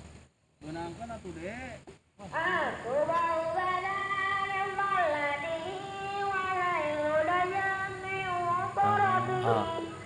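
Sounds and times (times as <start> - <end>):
high voice singing: 3.4 - 10.0.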